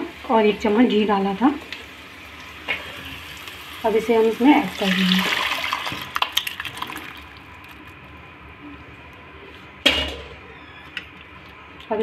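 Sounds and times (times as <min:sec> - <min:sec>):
lentils and water splashing into pan: 0:04.4 - 0:07.9.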